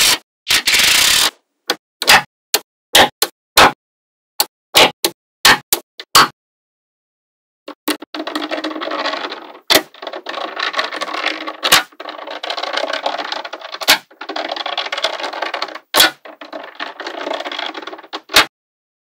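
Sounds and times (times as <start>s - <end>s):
magnetic balls rattling: 7.7s - 18.5s.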